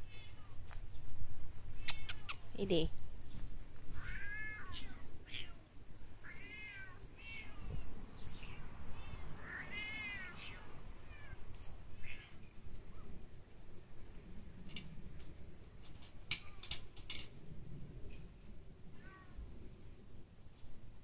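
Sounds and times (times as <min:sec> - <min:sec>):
cat meowing: 0:01.8 - 0:02.4, 0:04.0 - 0:12.5.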